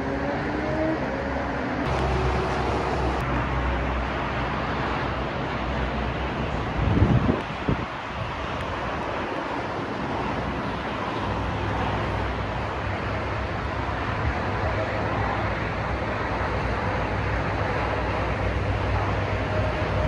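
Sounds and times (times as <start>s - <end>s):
passing cars on highway: 0.0s - 20.0s.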